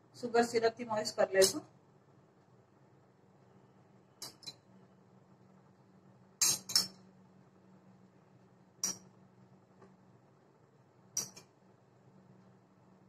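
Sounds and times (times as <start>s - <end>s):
spoon clinking on glass bowl: 6.4s - 7.0s.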